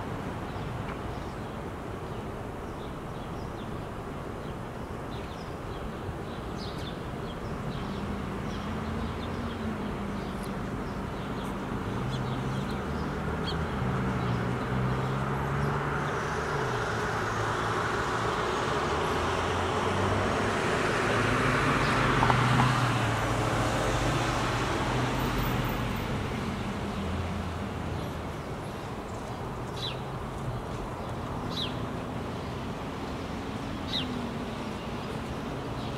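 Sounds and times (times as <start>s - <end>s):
passing vehicle engine and tyres: 7.7s - 28.3s.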